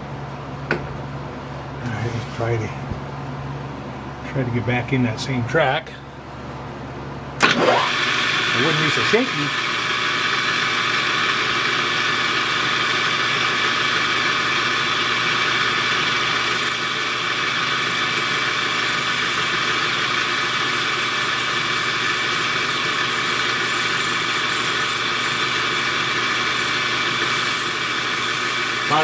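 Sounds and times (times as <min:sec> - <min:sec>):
metal lathe running: 0:07.4 - 0:29.0.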